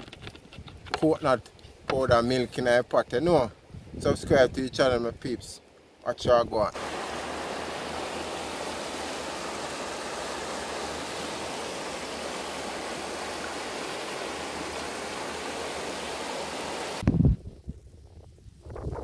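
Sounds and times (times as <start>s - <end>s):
river water flowing: 6.8s - 17.0s.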